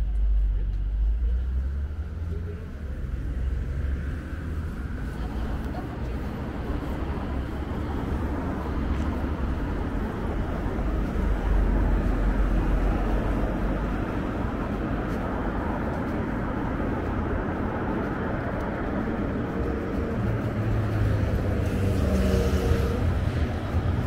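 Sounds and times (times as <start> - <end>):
low traffic rumble: 0.0 - 24.0
passing cars hum: 0.0 - 24.0.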